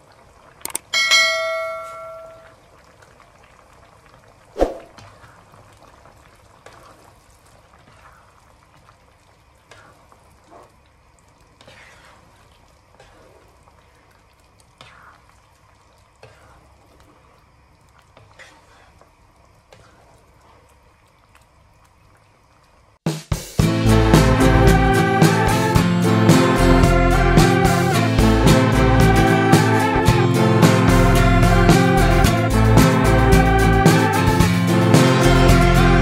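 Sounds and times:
sharp click: 0:00.7 - 0:00.9
curry sauce bubbles popping: 0:02.5 - 0:22.9.

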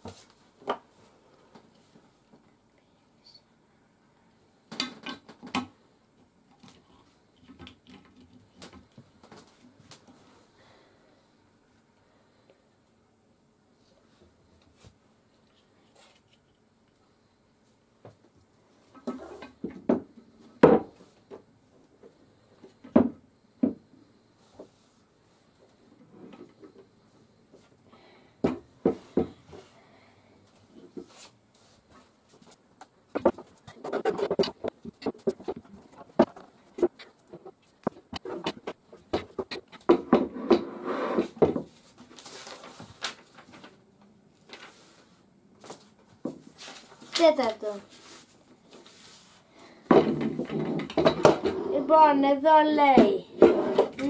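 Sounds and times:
paper rustling: 0:41.8 - 0:43.8, 0:44.4 - 0:45.9, 0:46.5 - 0:49.4.

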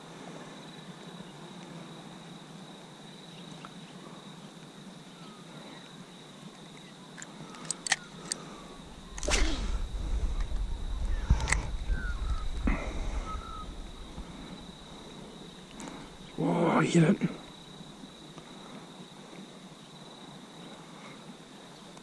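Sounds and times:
sharp clicks: 0:07.2 - 0:09.7, 0:10.3 - 0:12.8
loud low rumbling: 0:08.7 - 0:16.6.

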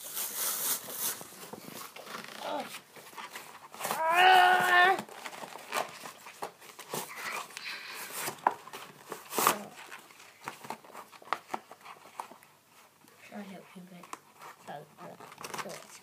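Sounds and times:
packaging crinkling and rustling: 0:00.0 - 0:16.0
cardboard and plastic snapping: 0:04.6 - 0:12.4.

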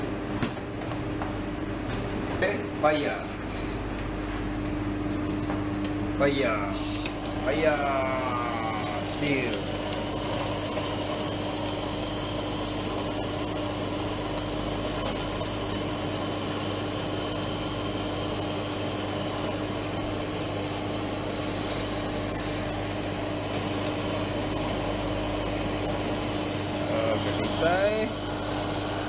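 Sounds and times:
gas torch hissing: 0:06.1 - 0:29.0.

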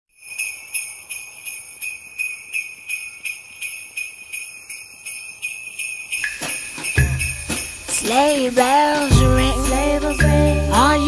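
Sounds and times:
sleigh bells shaken in a beat: 0:00.1 - 0:11.0.

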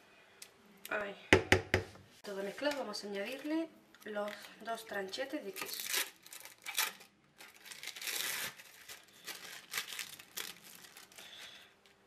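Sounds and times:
plastic wrapper crinkling and tearing: 0:02.6 - 0:11.8.

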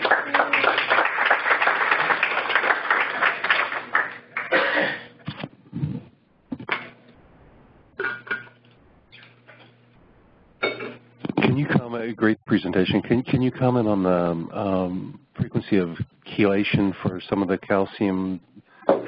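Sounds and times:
audience applauding: 0:00.0 - 0:04.6.

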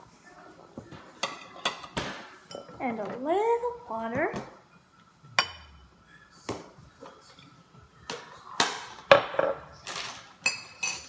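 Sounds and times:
glass and bowl knocking: 0:05.4 - 0:05.8
ringing glass clinks: 0:10.4 - 0:11.0.

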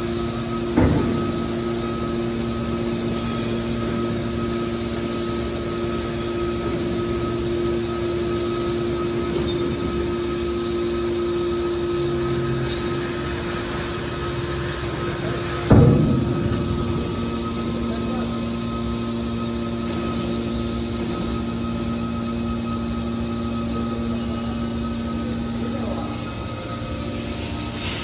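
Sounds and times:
hydraulic baler humming and whining: 0:00.0 - 0:28.0
lower hum: 0:14.9 - 0:24.7.

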